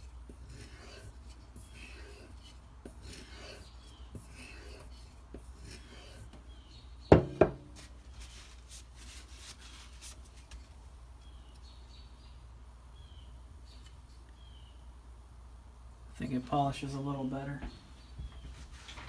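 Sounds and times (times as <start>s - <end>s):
knife scraping on strop: 0.3s - 6.4s.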